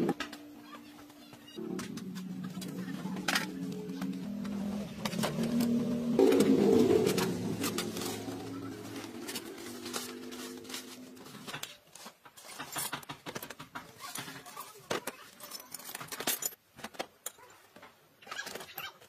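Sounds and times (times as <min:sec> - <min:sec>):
dove cooing: 0:01.6 - 0:11.5
metal tools clinking and knocking: 0:15.4 - 0:16.6.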